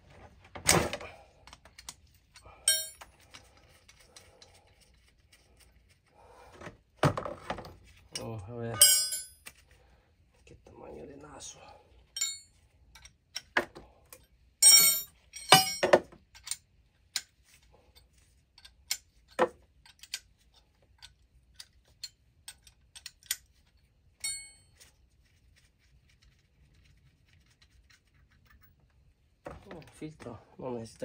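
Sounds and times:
short ringing metal clinks: 2.7s - 3.0s, 8.8s - 9.4s, 12.2s - 12.5s, 14.6s - 15.9s, 24.2s - 24.7s
metallic clicks and knocks: 14.6s - 17.3s, 20.9s - 24.6s.

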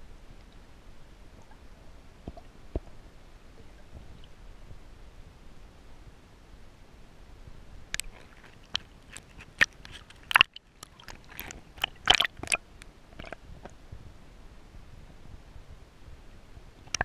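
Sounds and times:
water splashing and crackling: 7.9s - 13.8s.

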